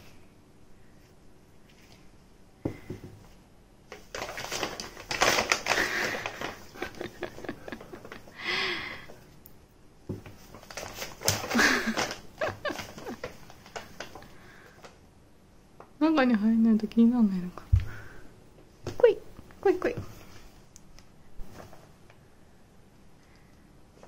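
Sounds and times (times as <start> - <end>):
paper bag crackling and rustling: 3.9 - 8.3, 10.2 - 14.4.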